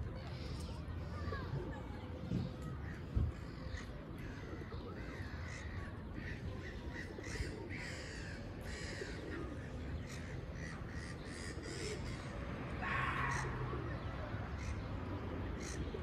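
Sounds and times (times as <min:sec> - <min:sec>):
birds cawing: 0:03.5 - 0:15.0.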